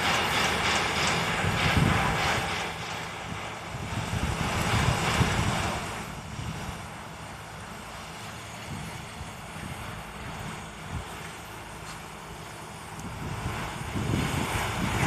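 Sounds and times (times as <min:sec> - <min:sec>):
steady hiss: 0:00.0 - 0:15.0
wind rumbling on microphone: 0:00.0 - 0:15.0.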